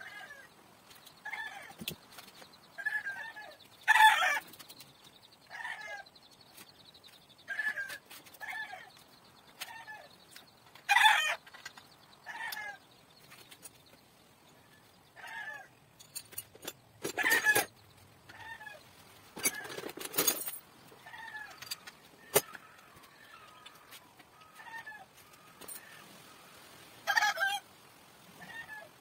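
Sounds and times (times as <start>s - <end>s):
chickens clucking: 16.6s - 20.1s.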